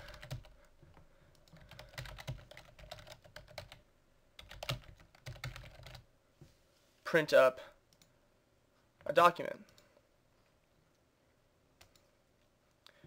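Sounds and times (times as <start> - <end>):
computer keyboard typing: 0.0 - 0.6, 1.3 - 3.8, 4.4 - 6.0, 11.8 - 12.1.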